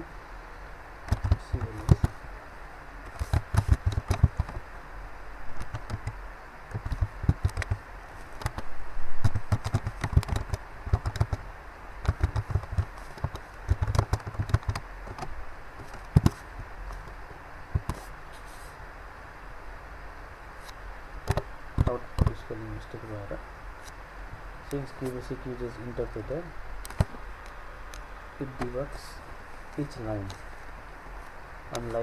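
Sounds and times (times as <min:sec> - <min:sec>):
steady low hiss: 0:00.0 - 0:32.0
keyboard typing: 0:01.1 - 0:02.2, 0:03.1 - 0:04.6, 0:05.6 - 0:07.8, 0:09.2 - 0:11.4, 0:12.0 - 0:16.4.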